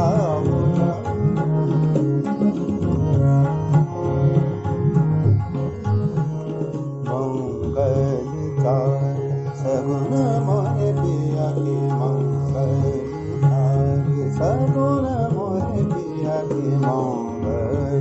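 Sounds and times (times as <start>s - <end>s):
man singing classical vocal: 0.0s - 1.9s, 7.1s - 18.0s
tabla playing: 0.0s - 18.0s.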